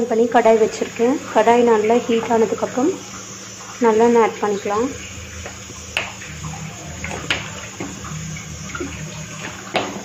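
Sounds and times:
oil pouring: 0.4s - 10.0s.

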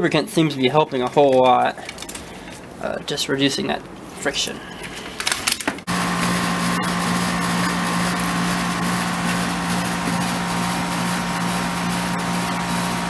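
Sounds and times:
rustling handling noise: 0.7s - 5.9s
machine hum: 5.8s - 13.0s.

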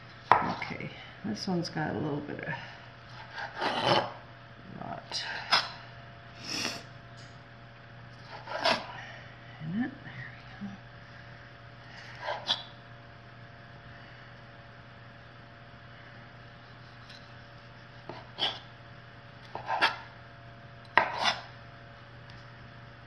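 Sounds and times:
faint steady hum: 0.0s - 23.0s
knife cutting on wooden board: 8.2s - 8.9s, 12.2s - 12.7s, 16.6s - 18.7s, 19.4s - 20.1s, 20.9s - 21.5s.

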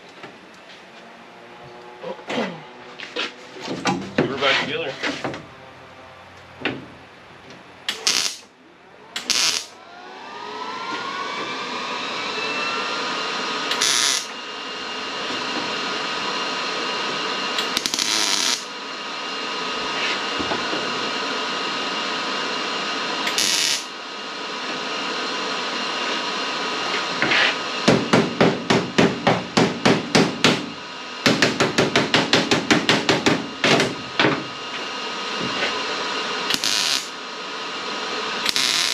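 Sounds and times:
cut-off tool whining on metal: 7.9s - 8.5s, 9.2s - 18.7s, 23.2s - 24.8s, 34.5s - 37.1s, 38.2s - 38.9s.

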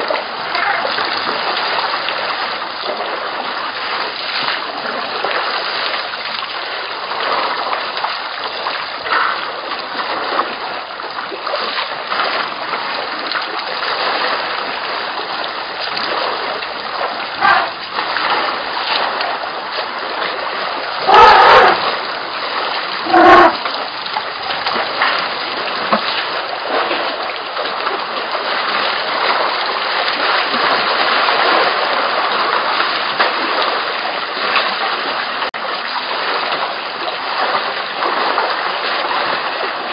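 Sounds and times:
water splashing and trickling: 0.0s - 39.9s.

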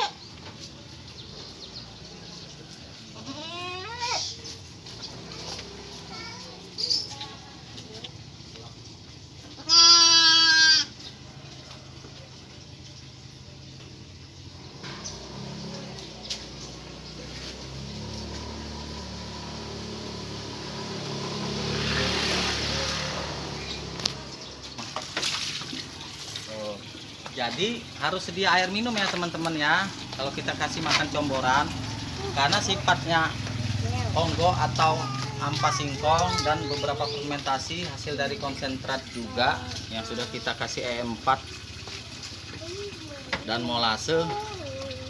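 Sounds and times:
livestock bleat: 3.2s - 4.0s, 9.6s - 10.9s
engine running: 14.5s - 25.0s, 29.0s - 40.0s.

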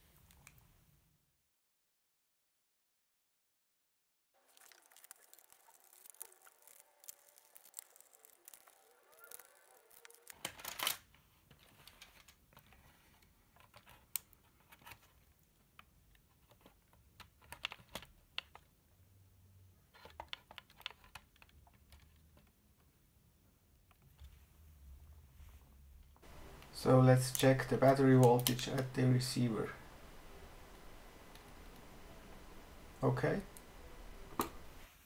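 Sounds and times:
plastic clicks and rattles: 20.0s - 22.5s.

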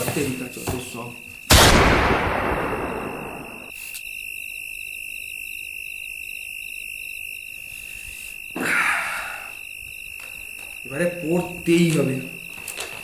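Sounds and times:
high insect drone: 0.0s - 1.6s, 2.2s - 13.0s
crickets chirping: 0.0s - 13.0s
loud hit: 1.5s - 3.7s.

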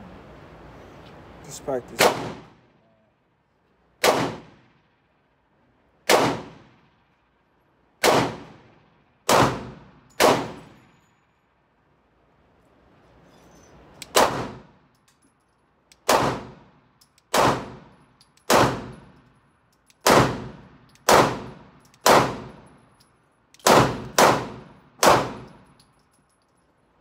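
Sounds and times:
pistol shots: 1.9s - 2.6s, 4.0s - 4.7s, 6.1s - 6.9s, 8.0s - 10.8s, 14.0s - 14.8s, 16.0s - 16.7s, 17.3s - 19.2s, 20.0s - 22.6s, 23.6s - 25.6s.

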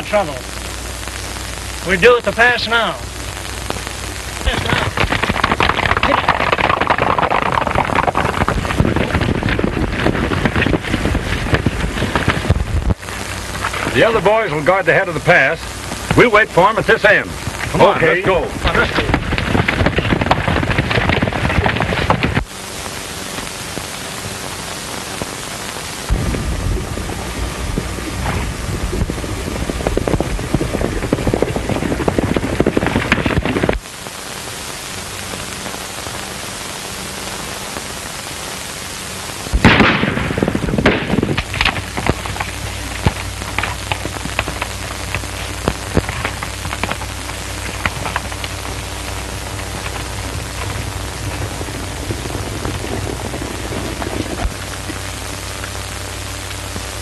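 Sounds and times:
film soundtrack hiss: 0.0s - 57.0s
horses galloping: 4.4s - 22.6s, 26.1s - 33.8s, 39.6s - 56.2s
sharp knocks and cracks: 4.7s - 13.0s, 18.9s - 22.5s, 39.6s - 48.6s
loud crash: 39.6s - 41.8s.

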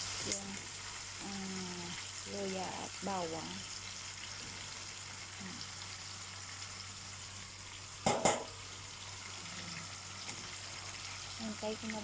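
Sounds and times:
chicken sizzling in hot oil: 0.0s - 12.0s
sharp knocks: 8.0s - 8.5s.

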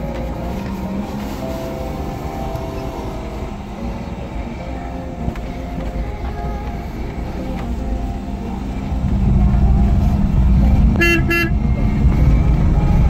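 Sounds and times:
car engine and road noise: 0.0s - 13.0s
car horn toots: 10.8s - 12.0s.

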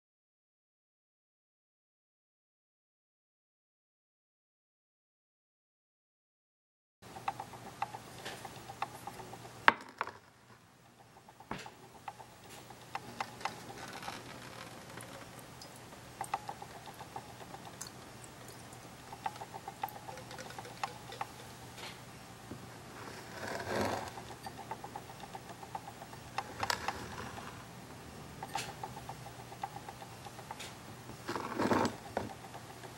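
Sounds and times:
steady low hum: 7.0s - 32.9s
quick light ticking: 7.1s - 9.7s, 10.9s - 22.0s, 23.7s - 27.5s, 28.3s - 31.2s.

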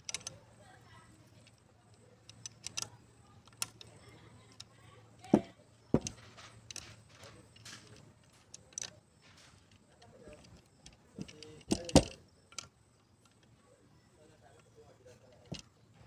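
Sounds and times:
tools clicking on metal casing: 0.0s - 0.4s, 1.4s - 13.6s.

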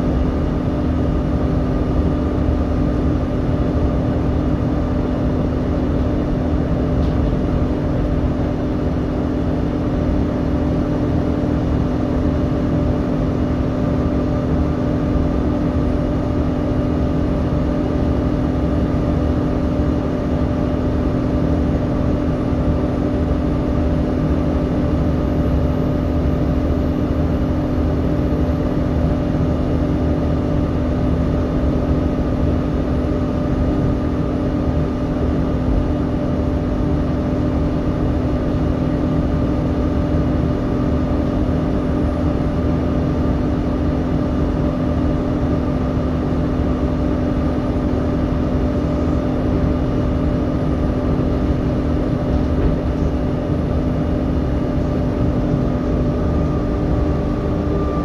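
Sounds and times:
engine cooling fan whine: 0.0s - 58.0s
bus diesel engine droning: 54.4s - 58.0s.

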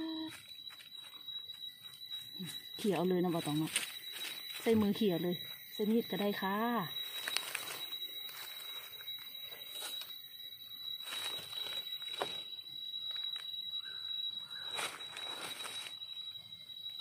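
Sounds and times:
steady high-pitched tone: 0.0s - 17.0s
rustling of dry leaf litter: 2.8s - 5.2s, 6.3s - 10.1s, 11.0s - 12.5s, 14.6s - 16.1s.

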